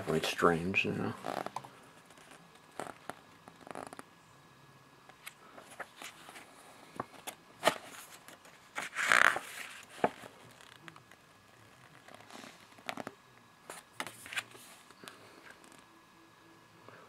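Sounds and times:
booklet pages rustling: 1.2 - 4.0, 5.1 - 15.8.

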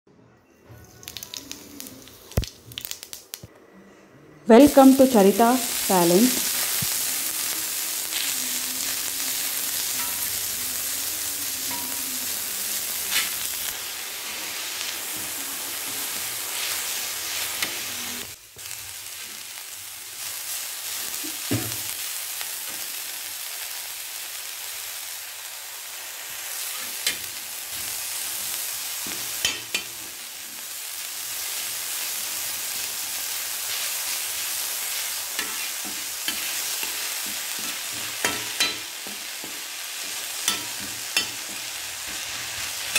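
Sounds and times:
onions sizzling in oil: 0.9 - 3.5, 4.5 - 42.9
spatula scraping a pan: 35.3 - 42.9.

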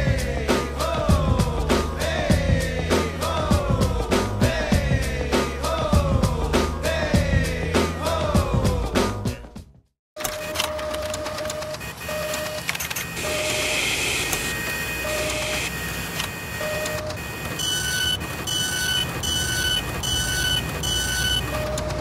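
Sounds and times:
mechanical running noise: 10.2 - 22.0
two-tone electronic beeps: 10.3 - 22.0.

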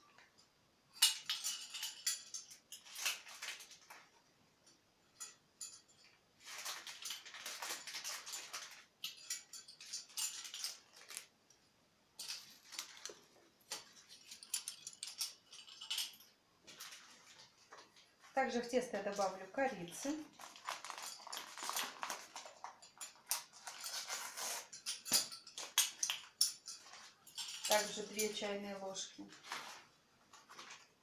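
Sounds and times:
measuring spoons clinking: 0.9 - 3.2, 6.9 - 11.0, 12.2 - 16.4, 22.4 - 28.5
spoon scraping powder: 23.7 - 25.0.

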